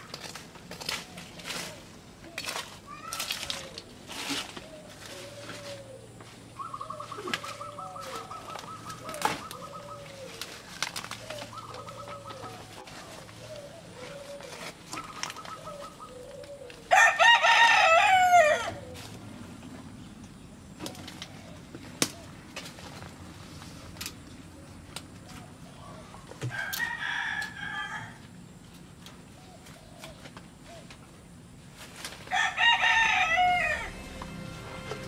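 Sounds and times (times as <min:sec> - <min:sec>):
rooster crowing: 0:16.9 - 0:18.9, 0:26.5 - 0:28.2, 0:32.3 - 0:34.0.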